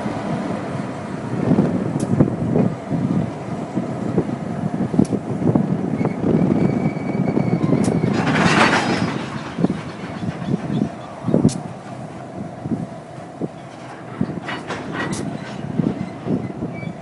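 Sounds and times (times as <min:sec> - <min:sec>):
diesel locomotives rumbling: 0:00.0 - 0:17.0
wind buffeting microphone: 0:00.0 - 0:17.0
thin squeal: 0:06.0 - 0:08.2.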